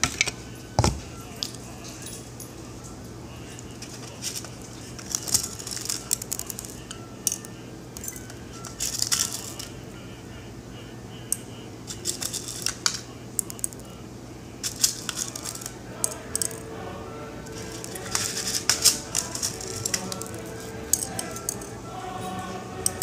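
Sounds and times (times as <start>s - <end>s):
faint low hum: 0.0s - 23.0s
small hard items clicking: 3.8s - 9.7s, 11.9s - 13.9s, 14.6s - 16.7s, 17.5s - 21.8s, 22.8s - 23.0s.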